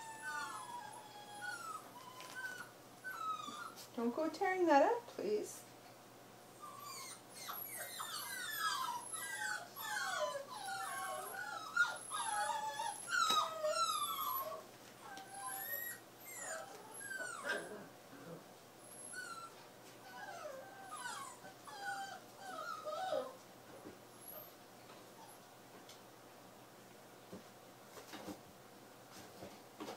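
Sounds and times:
puppy whining: 0.0 - 3.9, 6.5 - 23.5, 24.1 - 25.5.

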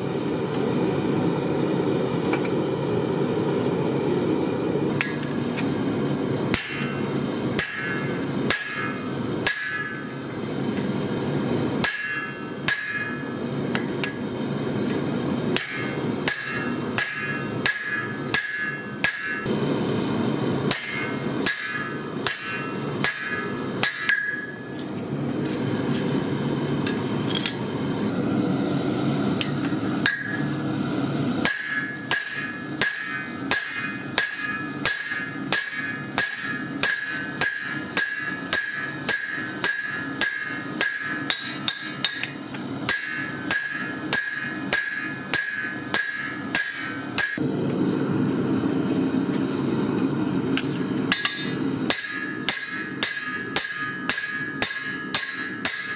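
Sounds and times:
hammer ringing on anvil: 6.5 - 10.1, 11.8 - 13.4, 15.6 - 19.5, 20.7 - 24.8, 30.0 - 30.5, 31.4 - 47.4, 51.1 - 55.9.

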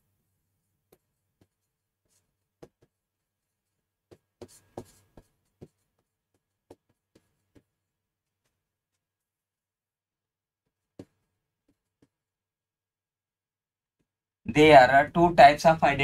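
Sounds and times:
stylus tapping on screen: 10.9 - 12.2.

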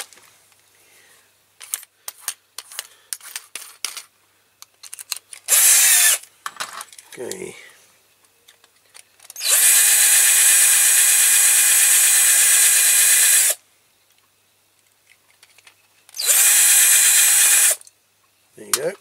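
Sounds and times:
electric drill running: 5.5 - 6.2, 9.4 - 13.6, 16.2 - 17.8.

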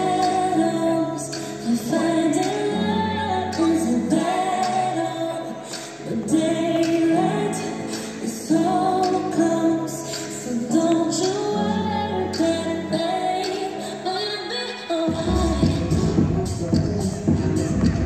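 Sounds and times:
woman singing with music: 0.0 - 18.0.

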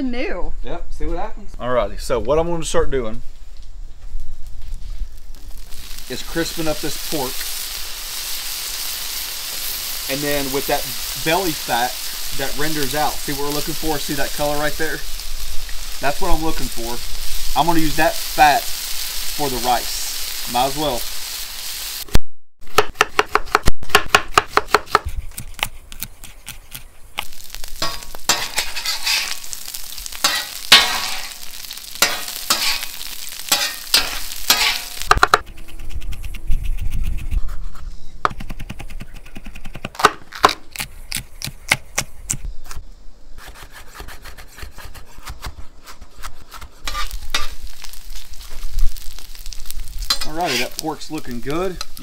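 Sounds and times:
meat sizzling on griddle: 3.6 - 22.1, 27.1 - 35.4, 46.8 - 52.0
knife chopping on wooden board: 22.8 - 26.9
metal spatula scraping: 27.8 - 35.1, 45.9 - 52.0.

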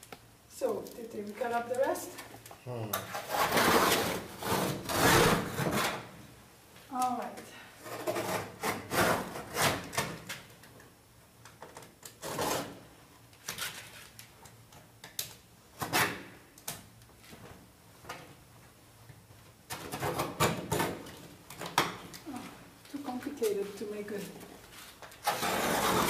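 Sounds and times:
hand tool scraping canvas: 3.1 - 6.0, 7.8 - 10.0, 12.2 - 12.8, 24.7 - 26.0.

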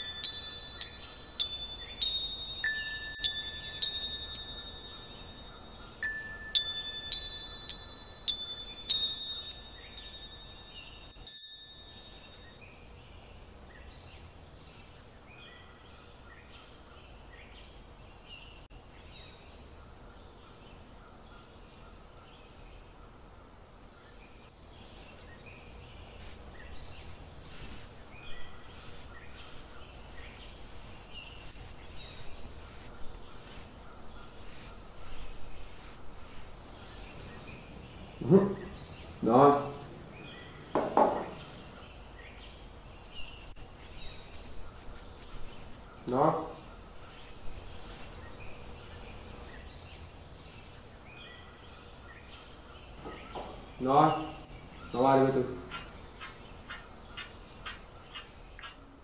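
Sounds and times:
bright chime notes ringing: 0.0 - 12.6
soft bird chirps: 0.0 - 59.0.

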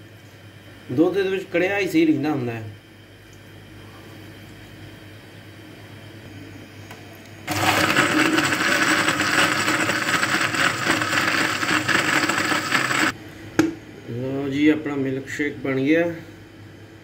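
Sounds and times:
electric blender running: 7.5 - 13.2.

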